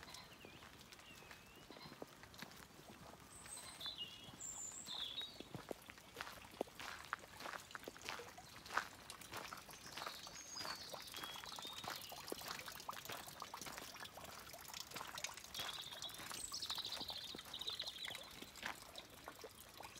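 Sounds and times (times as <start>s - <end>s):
birds calling: 0.0s - 2.1s, 3.3s - 6.3s, 9.7s - 12.5s
footsteps on a path: 0.0s - 19.4s.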